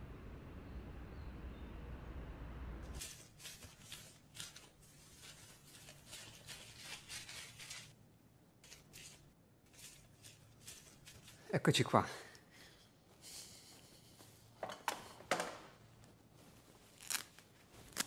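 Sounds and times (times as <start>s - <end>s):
low hum: 0.0s - 3.0s.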